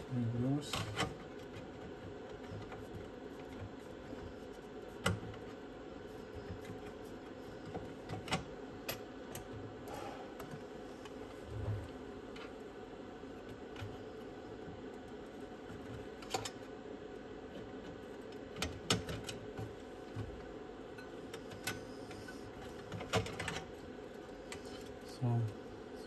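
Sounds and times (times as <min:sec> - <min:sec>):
background hum: 0:00.0 - 0:26.0
clicks and knocks handling electronics: 0:17.5 - 0:23.8.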